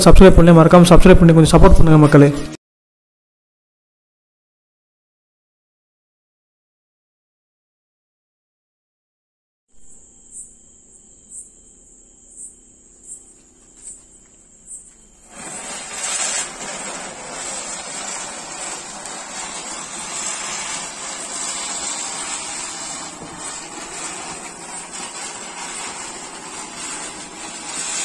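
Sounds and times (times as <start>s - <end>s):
spinning firework hissing: 12.4s - 28.0s.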